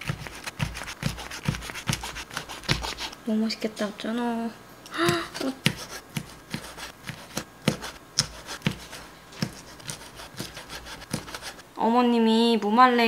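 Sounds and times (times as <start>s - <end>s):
knife chopping on plastic board: 0.0s - 3.1s, 5.1s - 11.6s.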